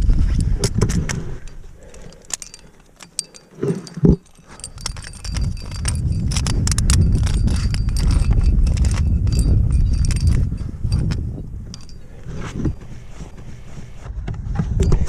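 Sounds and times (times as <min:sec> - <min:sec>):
metal climbing gear clinking: 0:00.0 - 0:14.1, 0:14.8 - 0:15.0
low rumble: 0:04.8 - 0:15.0.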